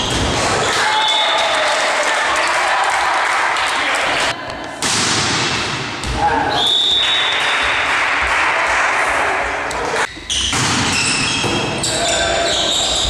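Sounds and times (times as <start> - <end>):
crowd cheering: 0.2 - 4.4, 6.2 - 10.1
volleyball hits: 4.8 - 7.8, 10.4 - 11.9
players' high-pitched calls: 10.3 - 13.0.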